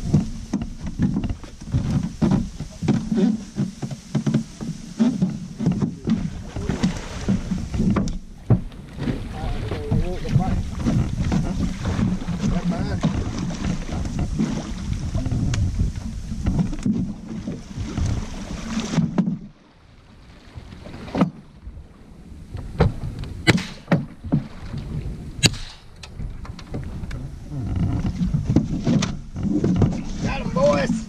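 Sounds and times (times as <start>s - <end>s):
water churning and splashing: 0.0s - 31.0s
sharp knocks: 22.8s - 24.5s, 25.4s - 26.0s.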